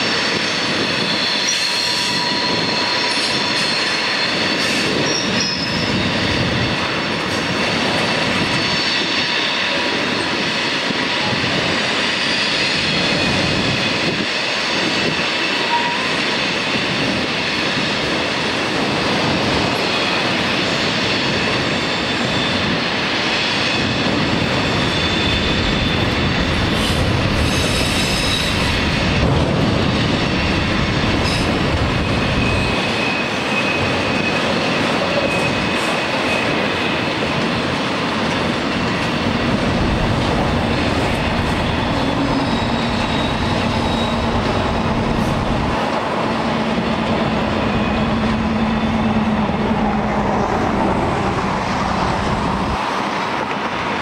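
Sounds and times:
steel wheels rumbling on rail: 0:00.0 - 0:54.0
wheel flanges squealing: 0:00.6 - 0:06.4, 0:40.6 - 0:45.5, 0:47.2 - 0:51.8.

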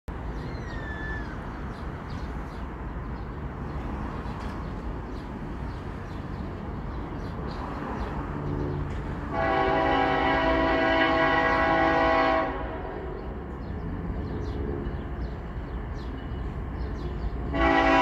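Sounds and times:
birds chirping: 0:00.1 - 0:09.2, 0:13.0 - 0:17.6
train engine hum: 0:00.1 - 0:18.0.

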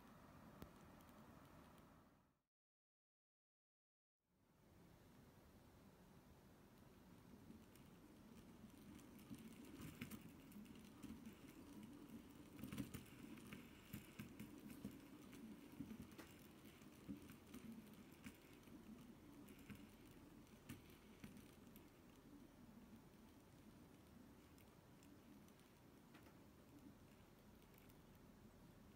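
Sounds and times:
fidget spinners whirring: 0:07.3 - 0:26.0.

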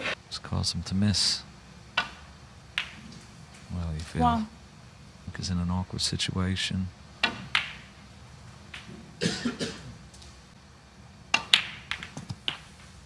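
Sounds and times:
snooker balls colliding: 0:02.8 - 0:03.2, 0:11.3 - 0:13.0
snooker cue striking ball: 0:11.4 - 0:12.7.

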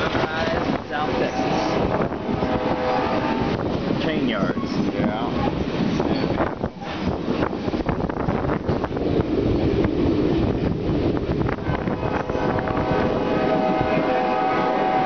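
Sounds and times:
freight train rumbling and rattling: 0:00.0 - 0:15.0
wind on microphone: 0:00.0 - 0:15.0.

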